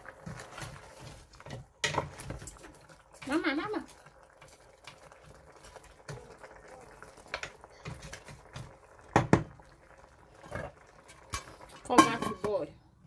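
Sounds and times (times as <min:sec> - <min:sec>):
wooden spatula scraping pot: 0:00.0 - 0:06.2, 0:07.3 - 0:09.4.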